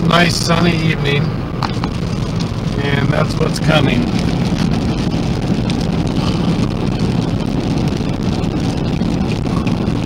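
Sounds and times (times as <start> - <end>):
car road noise: 0.0 - 10.0
raindrops ticking on windshield: 1.6 - 10.0.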